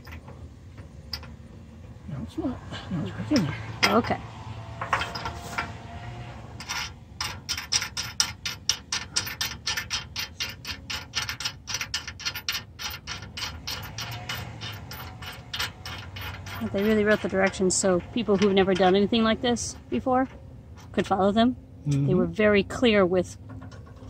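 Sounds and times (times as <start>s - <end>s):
ratchet wrench clicking: 6.6s - 19.3s.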